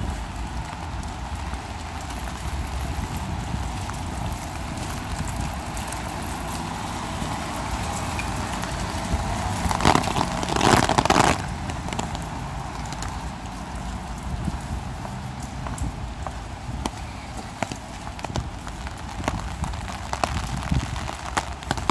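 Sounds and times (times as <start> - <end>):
car tyres on wet cobblestones: 0.0 - 21.9
traffic low rumble: 0.0 - 21.9.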